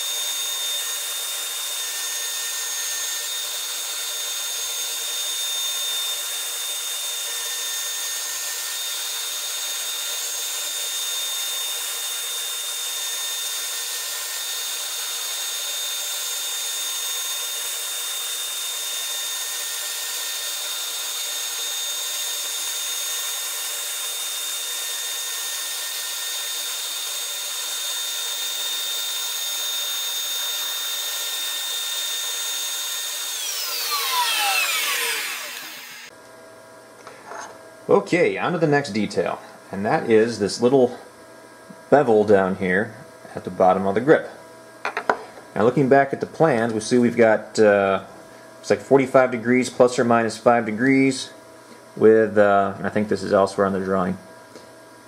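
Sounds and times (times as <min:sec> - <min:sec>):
hiss of bit cutting wood: 0:00.0 - 0:36.1
router spindle whining: 0:00.0 - 0:36.1.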